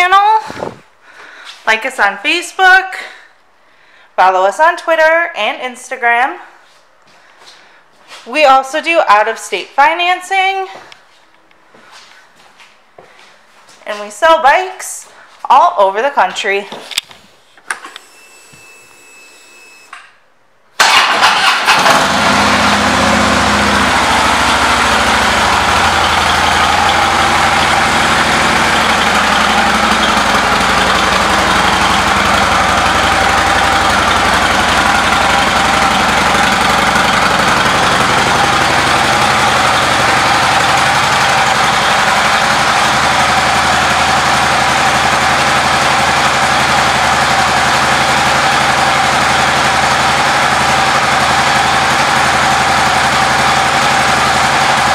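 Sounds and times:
motorcycle engine starting and idling: 0:20.8 - 0:54.9.

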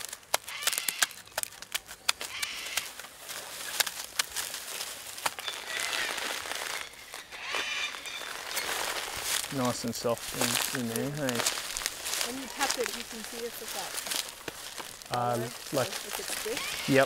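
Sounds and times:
tree bark tearing: 0:00.0 - 0:17.0.

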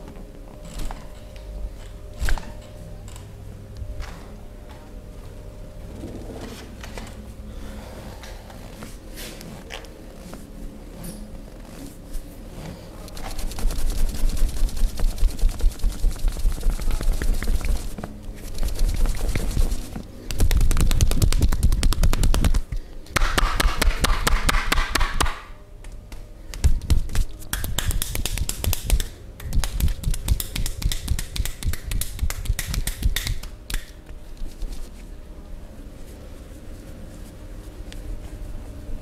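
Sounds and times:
hands slapping on thigh: 0:20.3 - 0:34.6.

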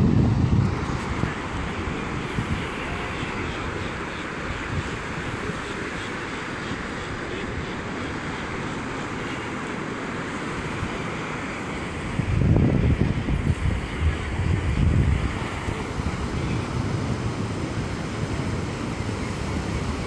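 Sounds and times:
surf washing onto beach: 0:00.0 - 0:20.0
wind buffeting microphone: 0:00.0 - 0:20.0.

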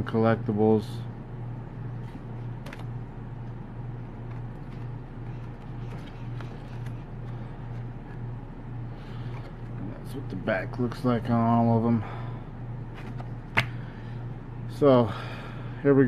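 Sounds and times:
steady low hum: 0:00.0 - 0:16.0
postcards being handled: 0:04.2 - 0:08.2, 0:12.9 - 0:13.7.

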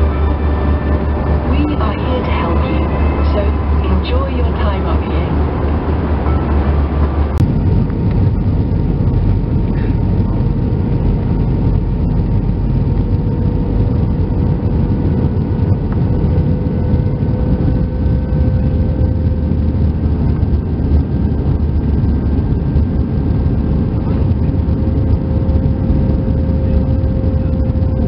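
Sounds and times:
faint steady whine: 0:00.0 - 0:28.0
jet engine cabin rumble: 0:00.0 - 0:28.0.

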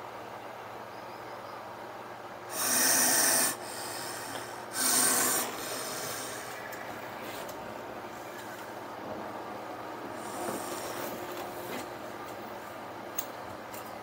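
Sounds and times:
snake hissing: 0:02.5 - 0:07.2.

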